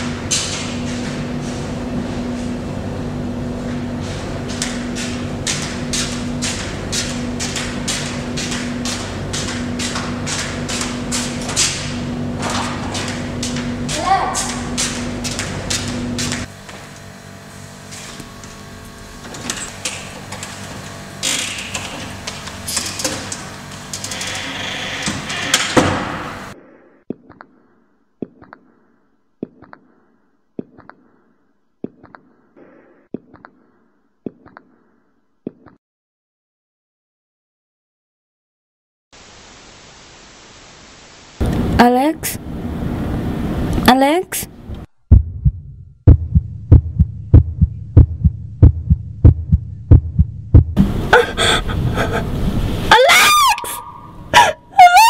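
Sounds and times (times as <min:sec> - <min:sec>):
heartbeat double thump: 0:45.1 - 0:50.9
shrill sliding cries: 0:52.9 - 0:55.0.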